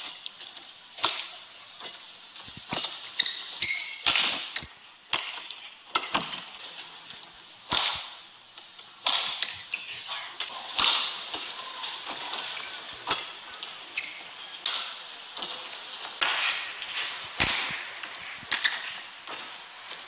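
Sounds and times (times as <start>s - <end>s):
rackets hitting shuttlecock: 2.7s - 6.5s, 7.7s - 8.2s, 9.0s - 9.8s, 10.7s - 11.5s, 16.2s - 19.5s
shoe squeaks on court: 3.1s - 4.0s, 14.0s - 14.3s.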